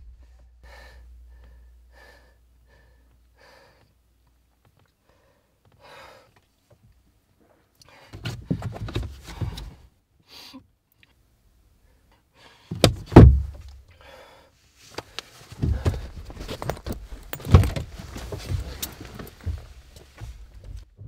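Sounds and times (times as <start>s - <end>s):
heavy thuds inside a car: 12.7s - 13.8s, 15.6s - 21.0s
shuffling knocks: 15.5s - 21.0s.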